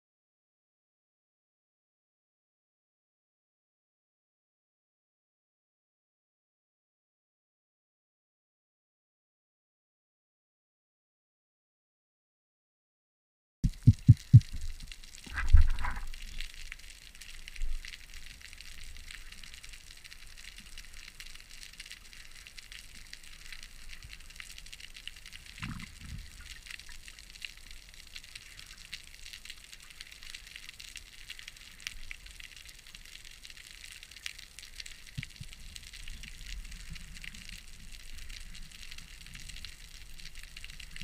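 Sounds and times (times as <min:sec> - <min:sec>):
underwater crackling hiss: 0:13.7 - 0:41.0.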